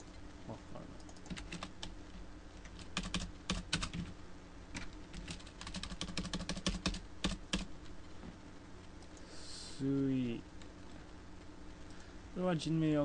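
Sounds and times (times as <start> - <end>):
typing on a keyboard: 1.0 - 1.9, 2.6 - 4.1, 4.8 - 7.7.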